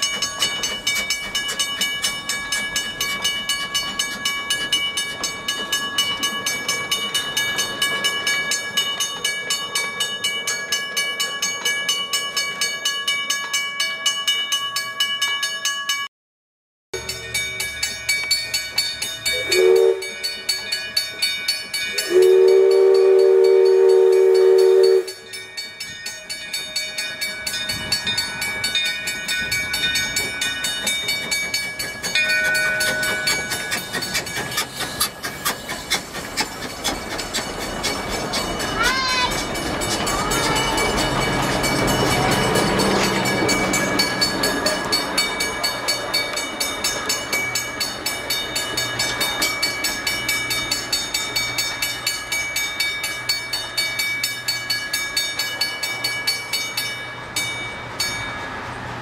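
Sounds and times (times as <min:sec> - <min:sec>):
steam locomotive whistle: 0:19.3 - 0:20.2, 0:21.9 - 0:25.3.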